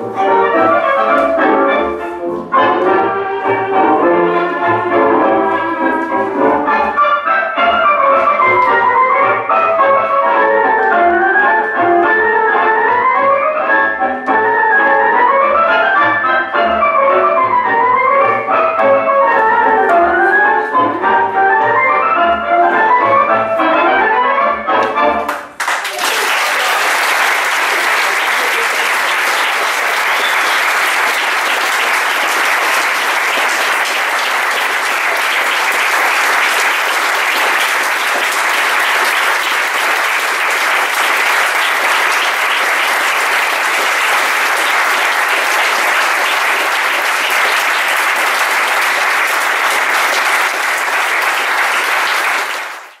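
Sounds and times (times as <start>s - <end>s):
tango music: 0.0s - 25.6s, 26.5s - 53.0s
audience applause: 25.3s - 53.0s.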